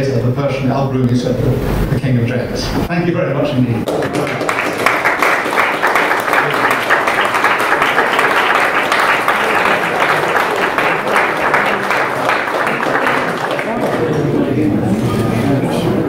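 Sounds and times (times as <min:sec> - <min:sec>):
audience applauding: 0:03.9 - 0:14.6.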